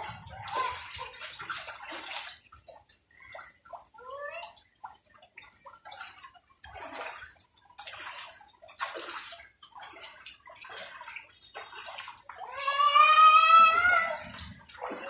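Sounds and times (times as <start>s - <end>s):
bare feet splashing in water: 0.0s - 15.0s
toddler squealing: 12.5s - 14.2s.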